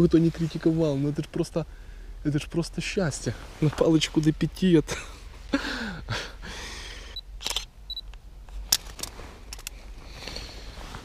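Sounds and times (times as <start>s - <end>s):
camera shutter clicks: 7.4s - 7.7s.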